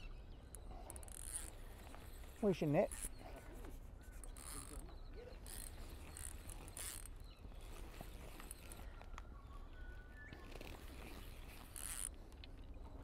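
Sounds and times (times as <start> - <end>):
fishing reel winding and clicking: 0.8 - 2.3, 2.9 - 3.2, 4.3 - 4.8, 5.4 - 7.2, 11.0 - 12.2.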